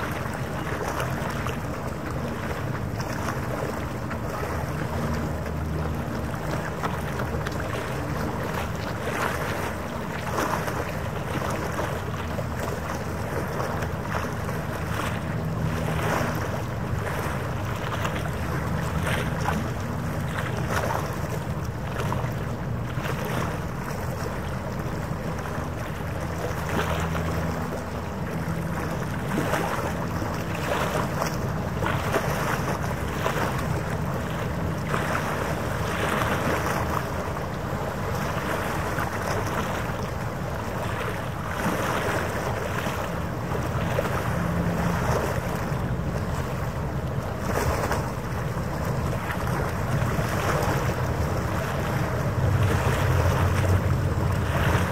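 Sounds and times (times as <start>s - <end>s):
harbour water washing: 0.0s - 54.9s.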